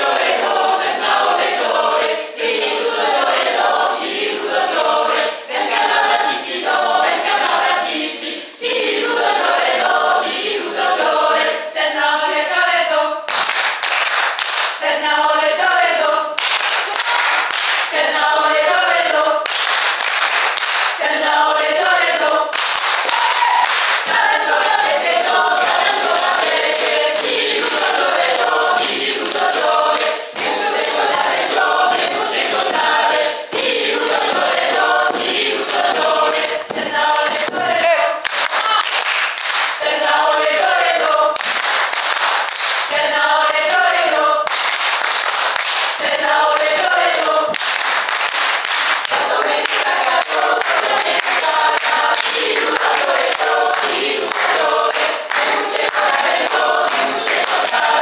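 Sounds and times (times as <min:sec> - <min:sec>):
mixed choir singing unaccompanied: 0:00.0 - 0:13.3, 0:14.8 - 0:19.6, 0:20.9 - 0:38.8, 0:39.7 - 0:44.6, 0:45.9 - 0:47.7, 0:49.0 - 0:58.0
sharp hand claps: 0:13.3 - 0:14.8, 0:16.4 - 0:18.0, 0:19.4 - 0:21.0, 0:22.5 - 0:31.1, 0:38.2 - 0:39.8, 0:41.4 - 0:43.6, 0:44.4 - 0:46.0, 0:46.6 - 0:58.0.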